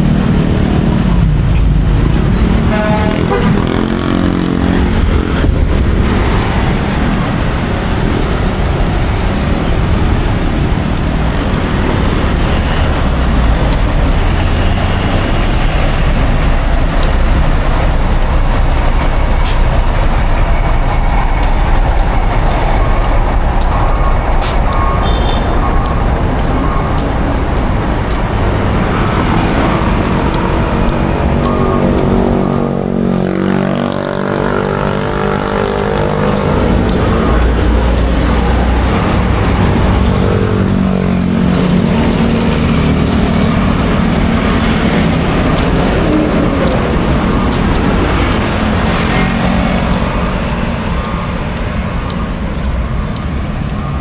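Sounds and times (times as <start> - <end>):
loud road traffic: 0.0 - 54.0.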